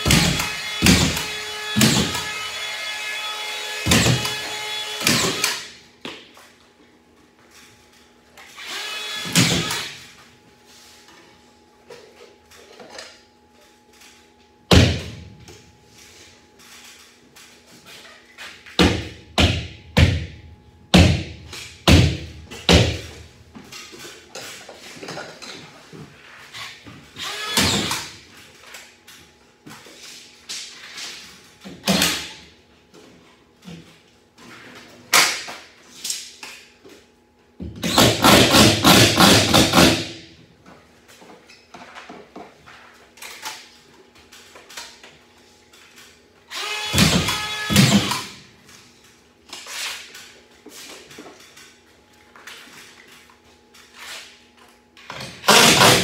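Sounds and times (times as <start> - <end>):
screw gun driving screws: 46.5 - 48.3, 55.4 - 56.0.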